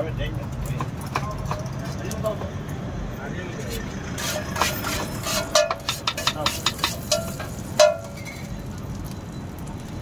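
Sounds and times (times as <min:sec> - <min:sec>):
spatula clanking down: 0:04.2 - 0:08.4
metal spatula clinking on griddle: 0:04.2 - 0:08.5.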